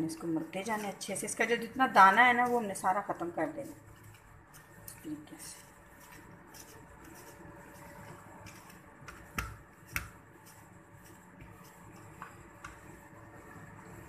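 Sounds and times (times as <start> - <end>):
hands mashing cheese on plate: 5.6 - 13.0.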